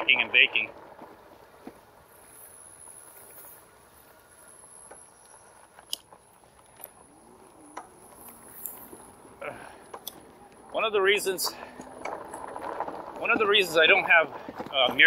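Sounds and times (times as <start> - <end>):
soft rolling hiss: 0.0 - 15.0.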